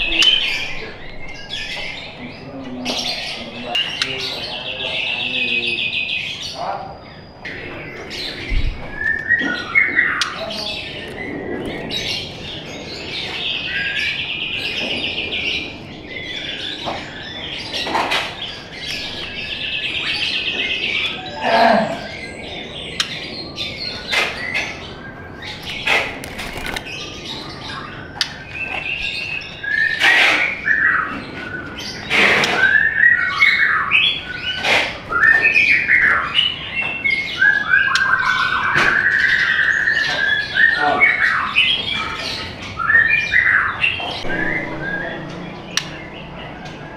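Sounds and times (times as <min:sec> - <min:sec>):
bird sharp chips: 0:25.5 - 0:27.4.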